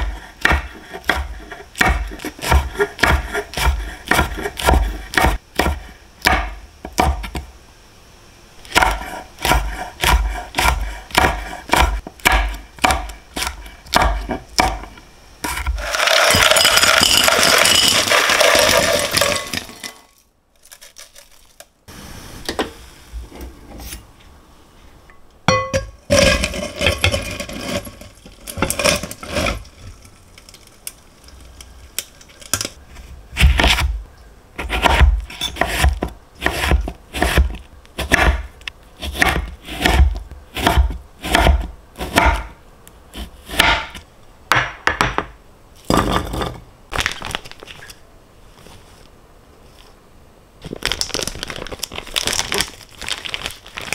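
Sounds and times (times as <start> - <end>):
knife chopping on wooden board: 0.0 - 7.4, 8.7 - 14.9, 34.6 - 42.5, 43.2 - 45.2
steady hiss: 21.8 - 25.4.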